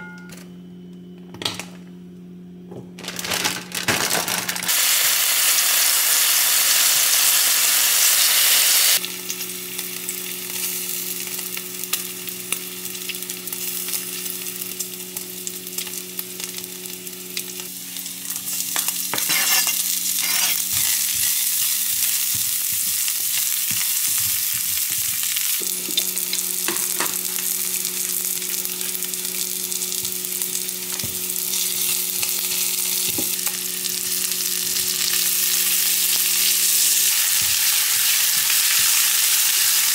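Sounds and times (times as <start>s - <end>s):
meat sizzling in a frying pan: 4.7s - 39.9s
steady low hum: 9.0s - 38.8s
knife scraping cutting board: 19.1s - 25.0s.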